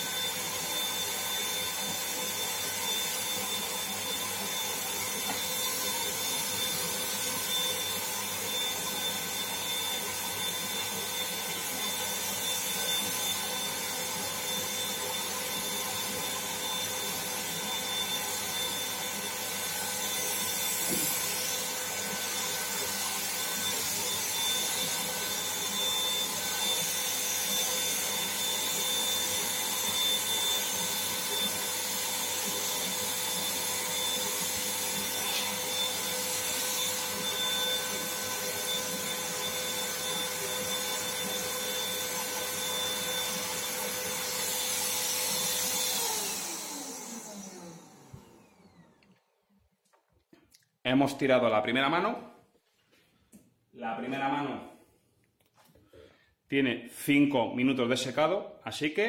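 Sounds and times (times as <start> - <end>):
paint spray gun running: 13.6 - 47.2.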